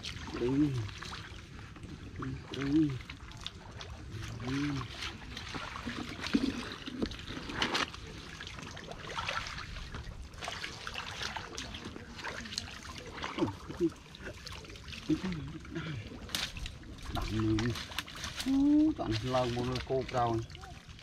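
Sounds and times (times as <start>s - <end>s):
hands squelching in wet mud: 0.0s - 21.0s
water trickling and splashing: 0.0s - 21.0s
man murmuring: 15.1s - 16.1s.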